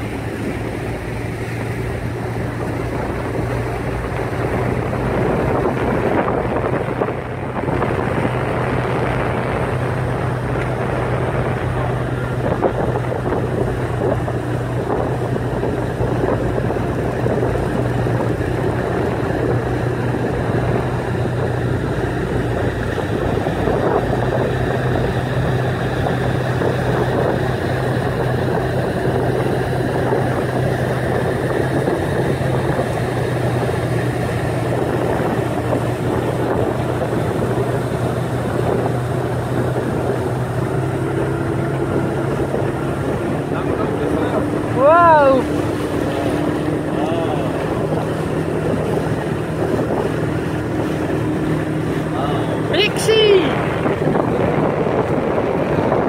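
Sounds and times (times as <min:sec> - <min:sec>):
boat engine droning: 0:00.0 - 0:56.0
water churning in wake: 0:00.0 - 0:56.0.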